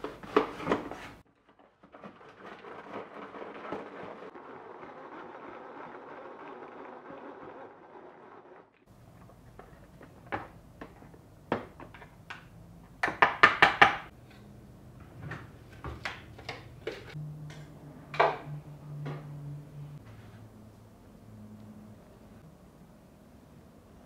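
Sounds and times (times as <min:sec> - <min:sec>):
spoon scraping plastic bowl: 0:00.0 - 0:10.3, 0:15.8 - 0:17.2.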